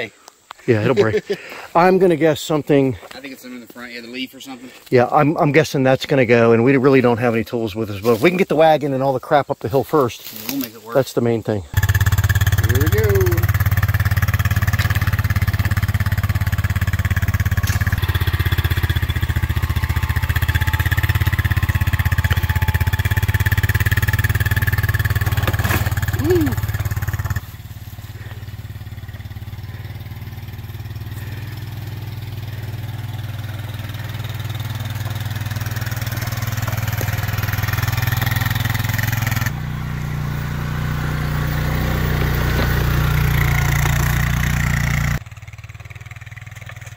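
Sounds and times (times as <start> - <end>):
atv engine running: 11.6 - 46.9.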